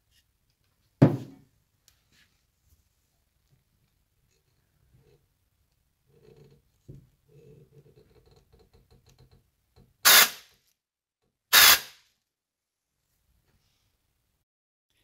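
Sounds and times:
compressed air blasts: 0:10.0 - 0:10.5, 0:11.5 - 0:12.0.

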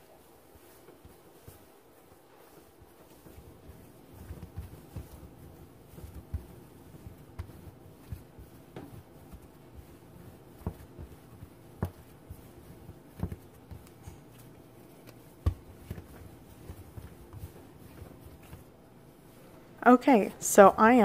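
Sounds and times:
dough kneading thumps: 0:00.0 - 0:19.6.

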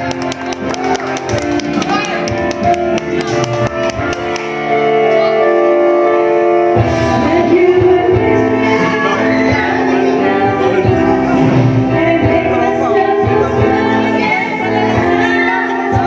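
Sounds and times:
karaoke backing track: 0:00.0 - 0:16.0
person singing: 0:06.8 - 0:16.0.

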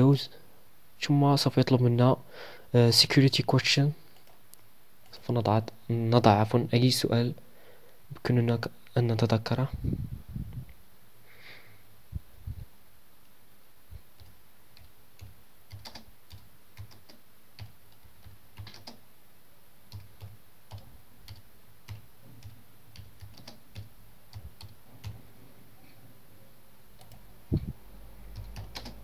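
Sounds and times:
keyboard keys clicking: 0:14.2 - 0:19.0, 0:19.9 - 0:25.2, 0:28.3 - 0:29.0.

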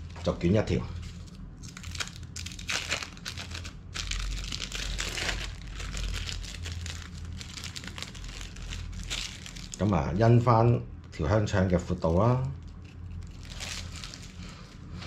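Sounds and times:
plastic film crinkling: 0:00.9 - 0:10.0, 0:12.5 - 0:15.0.

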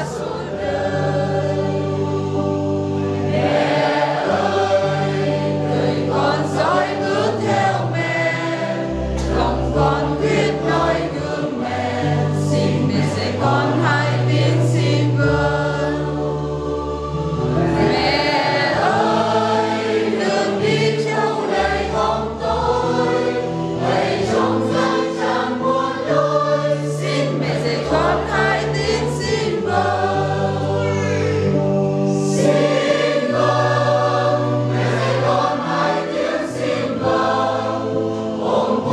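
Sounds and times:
congregation singing a hymn: 0:00.0 - 0:38.9.

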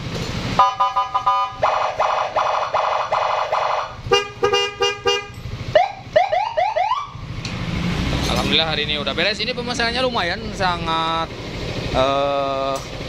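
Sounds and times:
electronic siren: 0:00.6 - 0:04.0, 0:05.7 - 0:07.2.

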